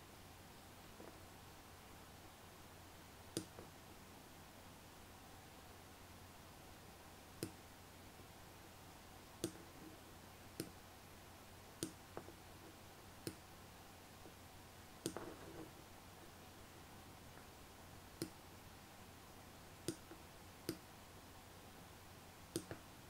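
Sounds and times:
faint room hiss: 0:00.0 - 0:23.0
computer mouse clicking: 0:22.6 - 0:22.8.

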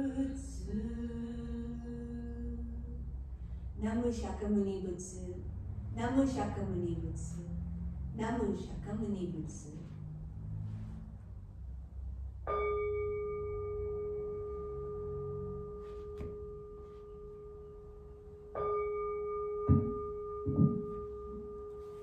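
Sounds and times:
bowl bell ringing: 0:12.5 - 0:22.0
dull low thumps: 0:19.6 - 0:21.5.

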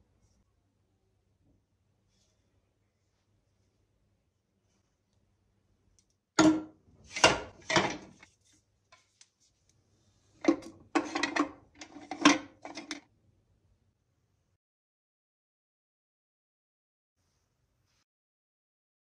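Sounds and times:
wooden utensils clattering on glass: 0:06.4 - 0:08.2, 0:10.5 - 0:13.0.

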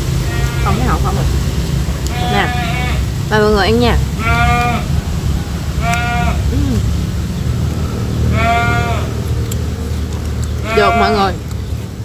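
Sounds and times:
steady low hum: 0:00.0 - 0:12.0
farm animal bleating: 0:00.3 - 0:01.0, 0:02.1 - 0:03.0, 0:04.2 - 0:04.9, 0:05.8 - 0:06.4, 0:08.3 - 0:09.1, 0:10.6 - 0:11.4.

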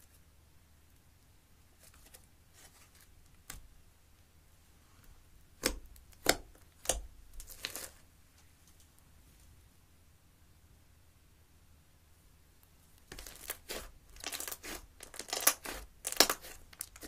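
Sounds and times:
sticky slime pops: 0:05.6 - 0:07.9, 0:13.1 - 0:17.0
slime crackles: 0:05.6 - 0:08.0, 0:13.0 - 0:17.0.

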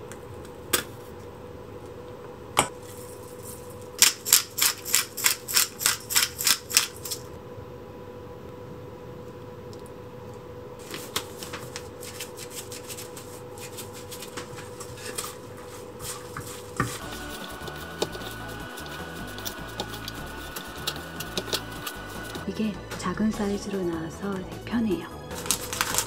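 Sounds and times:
glass shaker rattling: 0:04.1 - 0:07.3
hand mixing filling in bowl: 0:12.4 - 0:23.8.

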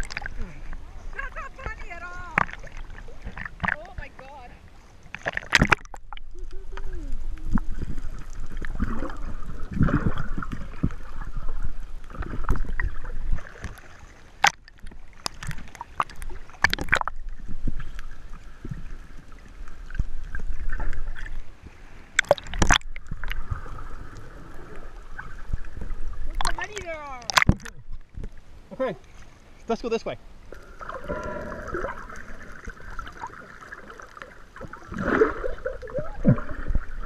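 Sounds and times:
water sloshing and gurgling: 0:00.0 - 0:37.0
sharp splashes: 0:05.1 - 0:11.2, 0:22.1 - 0:24.2, 0:26.2 - 0:27.8.

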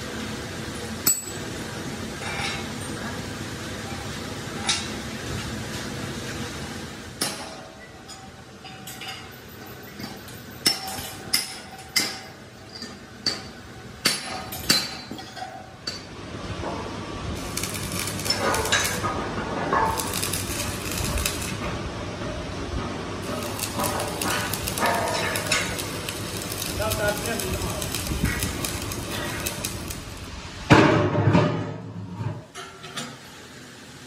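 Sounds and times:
hammer striking steel: 0:01.1 - 0:01.4, 0:07.2 - 0:09.3, 0:10.0 - 0:16.1, 0:17.4 - 0:21.5, 0:23.2 - 0:29.7.

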